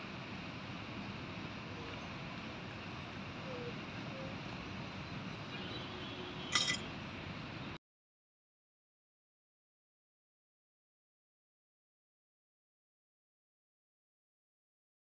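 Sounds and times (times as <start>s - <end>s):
steel utensil clink: 6.5s - 6.8s.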